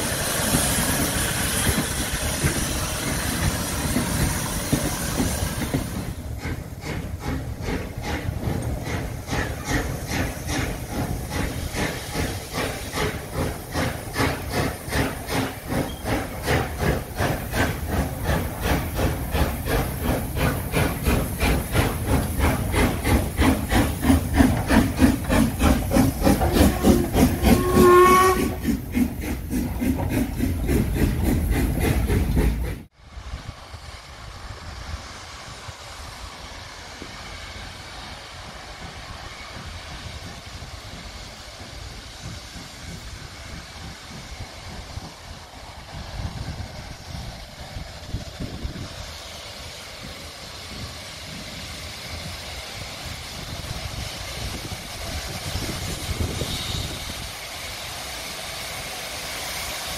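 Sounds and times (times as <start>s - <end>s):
steam hissing: 0.0s - 59.9s
steam locomotive chuffing: 0.0s - 59.9s
train whistle: 26.4s - 28.7s, 56.2s - 57.2s.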